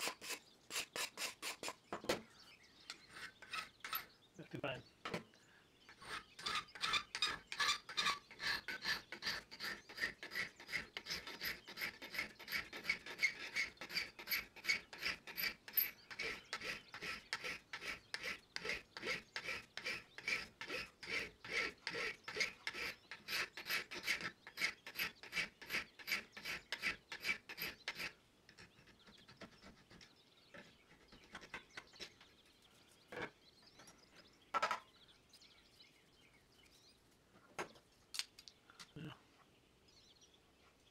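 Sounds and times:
hand file rasping on metal: 0.0 - 1.8, 2.9 - 4.1, 5.9 - 32.4.

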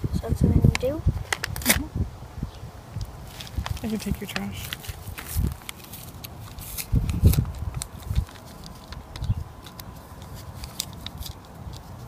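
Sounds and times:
paper packet crinkling: 3.3 - 12.0.

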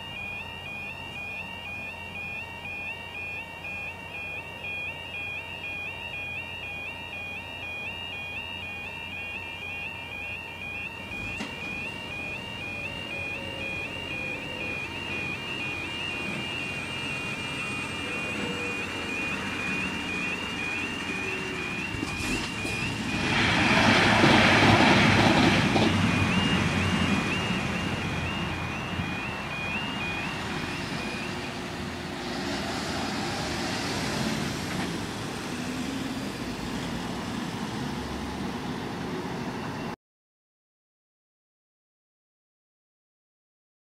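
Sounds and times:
warbling two-tone warning alarm: 0.0 - 37.1, 39.5 - 40.0
road traffic: 0.0 - 40.0
loud passing rush: 11.1 - 39.4.

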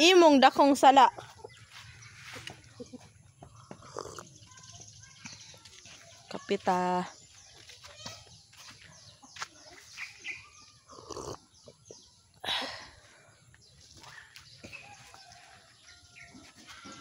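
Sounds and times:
farmyard animal calls: 0.2 - 12.3, 14.0 - 17.0.

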